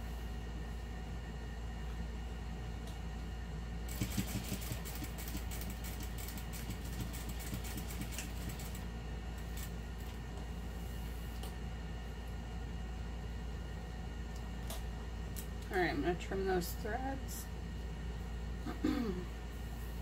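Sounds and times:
sewing machine stitching: 0:03.9 - 0:08.8.

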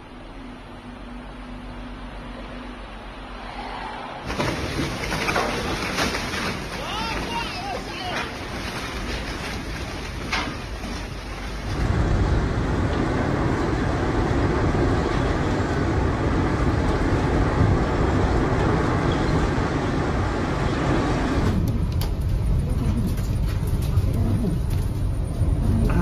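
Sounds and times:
low rumble: 0:00.0 - 0:26.0
storm wind blowing hard: 0:11.5 - 0:26.0.

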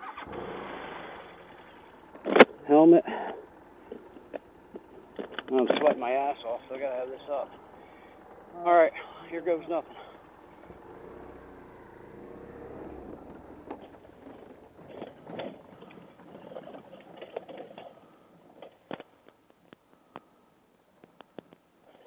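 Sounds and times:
motorcycle engine running low: 0:00.0 - 0:06.0, 0:09.6 - 0:18.3
loose rock crunching: 0:00.2 - 0:08.5, 0:13.0 - 0:20.1.

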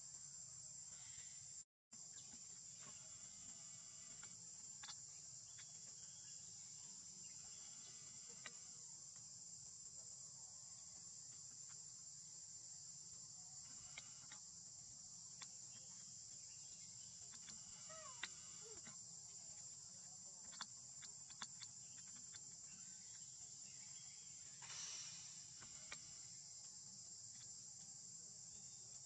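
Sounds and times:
insects chirring: 0:00.0 - 0:29.0
faint clicks: 0:08.3 - 0:08.7, 0:13.7 - 0:14.5, 0:17.2 - 0:19.0, 0:20.4 - 0:22.4.

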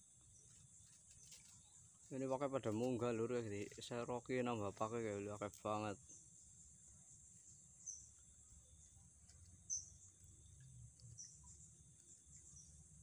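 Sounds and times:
faint insect drone: 0:00.0 - 0:13.0
short insect chirps: 0:05.2 - 0:13.0.

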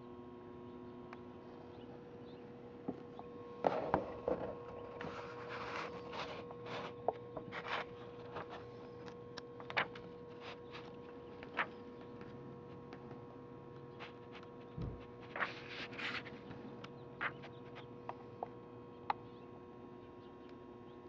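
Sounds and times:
steady electrical hum: 0:00.0 - 0:21.0
paper pages rustling: 0:03.6 - 0:13.3, 0:13.9 - 0:16.6.

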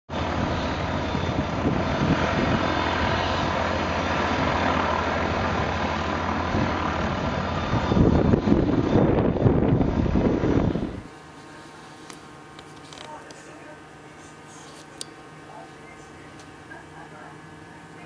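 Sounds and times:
propeller aircraft engine drone: 0:00.1 - 0:18.0
wind buffeting microphone: 0:00.2 - 0:11.1.

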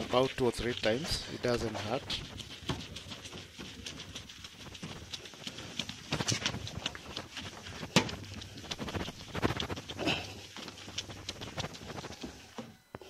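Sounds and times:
scouring pad scrubbing plastic: 0:00.0 - 0:12.8.

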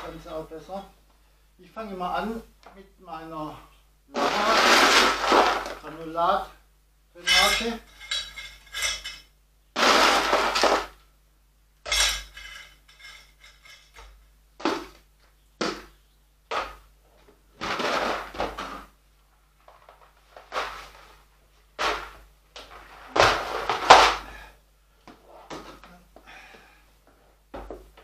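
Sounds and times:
granules clattering into ceramic pot: 0:07.2 - 0:11.0, 0:11.8 - 0:14.2.

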